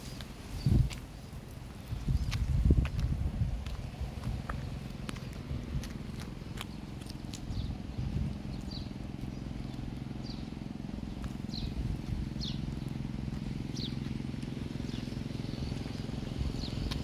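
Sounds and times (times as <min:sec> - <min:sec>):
small bird chirping: 0:06.5 - 0:17.0.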